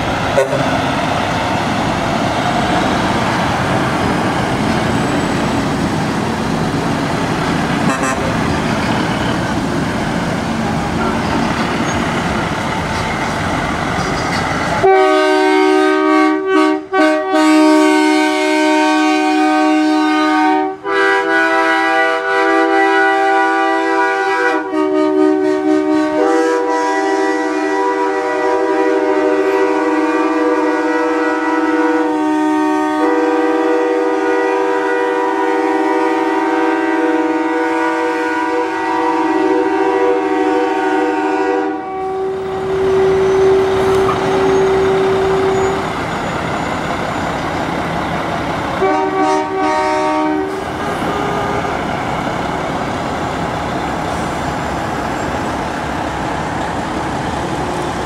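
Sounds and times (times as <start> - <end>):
diesel trucks pulling away: 0.0 - 14.8, 42.3 - 58.0
truck train horn chord: 0.4 - 0.8, 7.8 - 8.4, 11.0 - 11.4, 14.8 - 45.9, 48.8 - 51.9.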